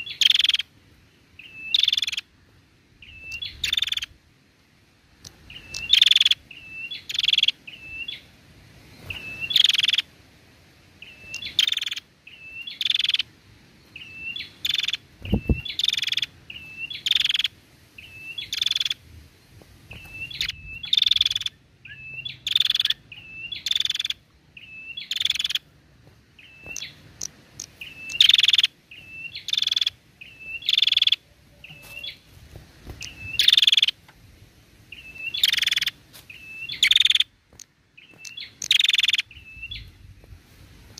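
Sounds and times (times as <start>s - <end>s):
tailorbird calling: 1.4s - 2.3s, 11.0s - 13.3s, 14.0s - 19.0s, 19.9s - 25.8s, 26.4s - 34.0s, 34.9s - 40.0s.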